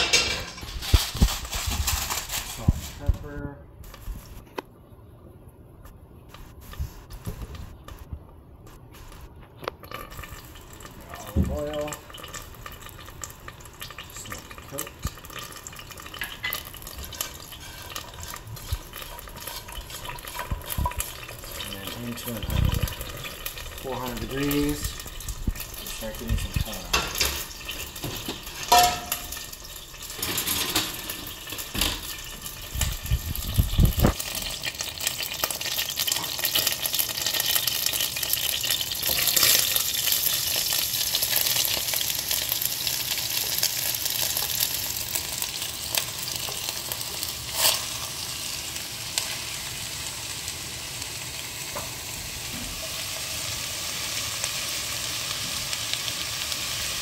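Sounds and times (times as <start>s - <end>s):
cookware clanking: 0.0s - 0.9s, 26.4s - 29.5s, 30.1s - 32.2s
food sizzling in a pan: 10.0s - 57.0s.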